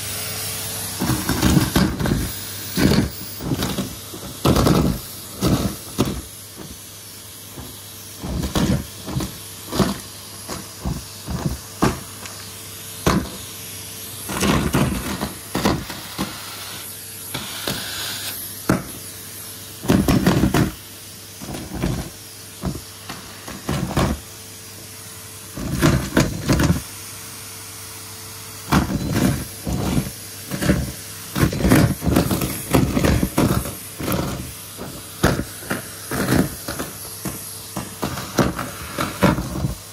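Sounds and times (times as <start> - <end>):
loud bursts of sucking noise: 0.0 - 39.9
vacuum cleaner running: 0.0 - 39.9.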